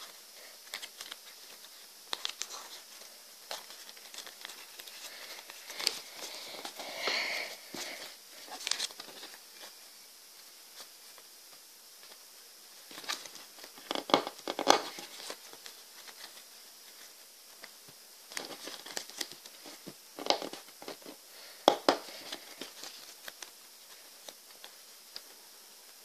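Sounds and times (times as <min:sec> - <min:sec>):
paper crinkling and rustling: 0:00.0 - 0:06.9, 0:07.7 - 0:09.8, 0:12.9 - 0:17.7, 0:18.3 - 0:21.2, 0:21.9 - 0:25.4.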